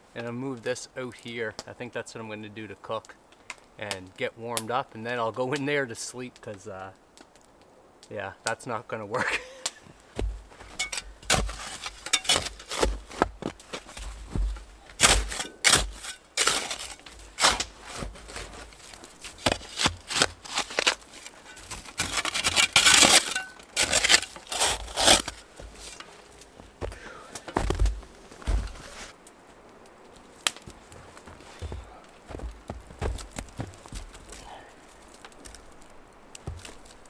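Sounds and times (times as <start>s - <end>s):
boots crunching through snow: 16.7s - 22.4s, 23.8s - 29.2s, 30.6s - 34.6s.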